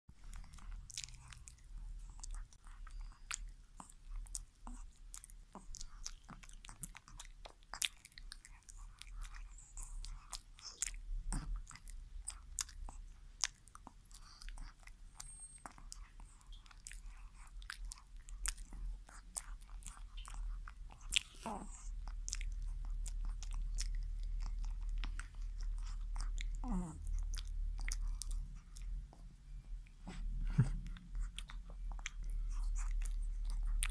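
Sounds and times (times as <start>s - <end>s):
dog chewing and licking: 0.2s - 33.9s.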